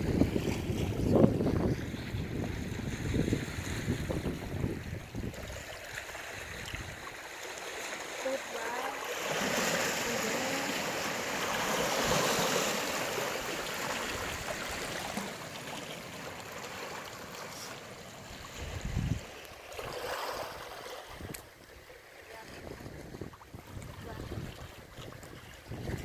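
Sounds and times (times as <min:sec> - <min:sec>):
wind buffeting microphone: 0:00.0 - 0:05.6, 0:18.5 - 0:19.4, 0:22.4 - 0:26.0
water lapping among rocks: 0:00.0 - 0:26.0.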